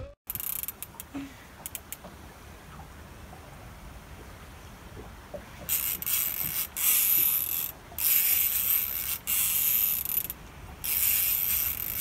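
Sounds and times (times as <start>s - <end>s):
fishing reel buzzing: 0.3s - 1.9s, 5.7s - 12.0s.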